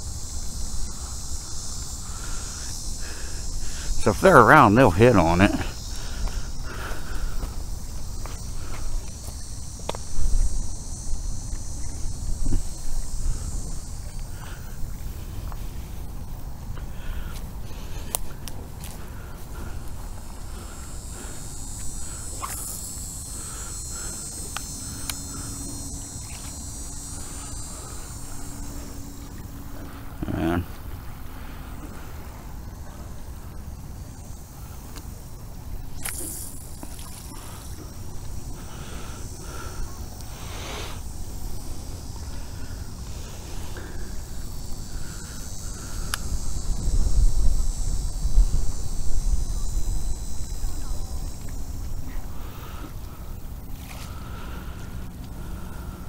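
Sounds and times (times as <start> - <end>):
high insect buzz: 0.0 - 56.0
low steady hum: 0.0 - 56.0
wind rumbling on microphone: 5.5 - 40.4, 41.0 - 53.9
faint ticks: 16.8 - 19.0, 21.8 - 23.1, 23.9 - 25.5, 45.2 - 46.4
wind buffeting microphone: 44.2 - 52.4.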